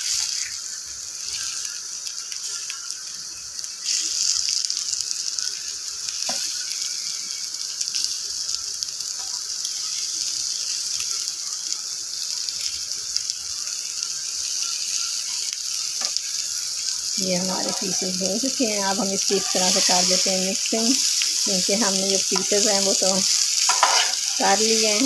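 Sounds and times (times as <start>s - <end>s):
omelette sizzling in frying pan: 0.0s - 25.0s
steel spatula scraping pan: 19.0s - 20.3s, 23.6s - 25.0s.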